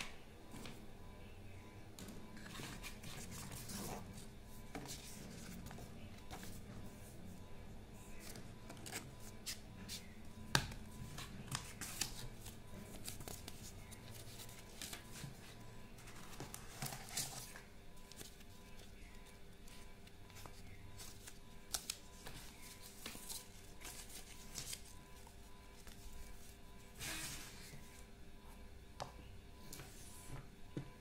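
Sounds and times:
cardboard and plastic rustling: 11.2 - 19.1.

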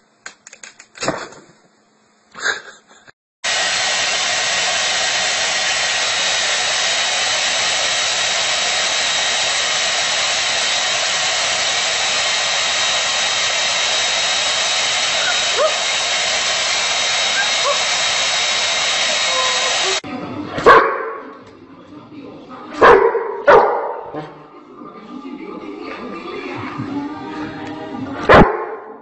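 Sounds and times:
hair dryer blowing: 3.4 - 20.0.

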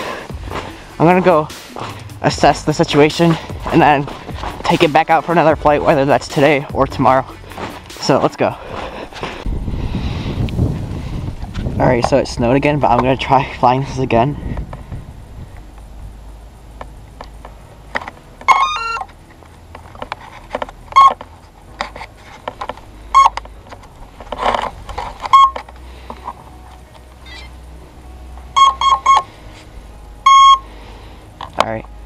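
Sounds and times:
motor beep tones: 23.1 - 23.4, 25.3 - 25.6, 28.5 - 29.3, 30.2 - 30.7.

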